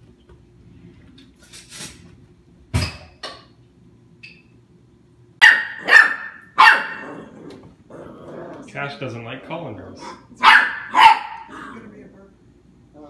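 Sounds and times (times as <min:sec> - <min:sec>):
puppy barking: 0:05.4 - 0:07.2, 0:10.0 - 0:11.8.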